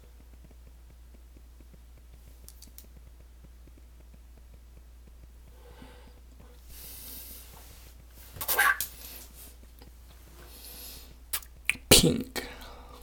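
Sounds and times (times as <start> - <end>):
low electrical hum: 0.0 - 13.0
soft hiss: 0.0 - 13.0
faint clicks: 0.2 - 5.4.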